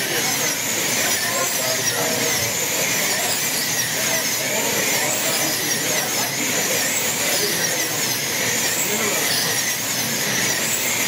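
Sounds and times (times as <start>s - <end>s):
slot car motors whining: 0.0s - 11.0s.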